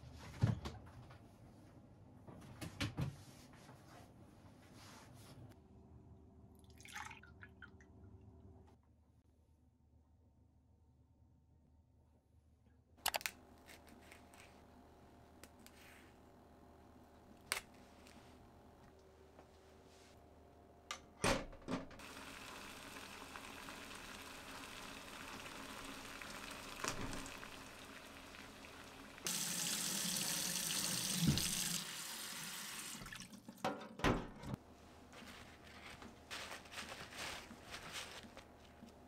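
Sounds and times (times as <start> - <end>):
tap running into sink: 30.9 - 31.8.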